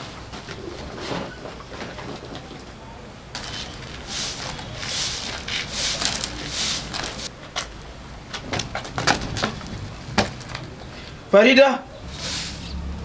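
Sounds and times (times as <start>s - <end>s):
broom sweeping bare earth: 3.4s - 7.3s, 12.0s - 13.0s
sharp clicks and knocks: 8.3s - 10.8s.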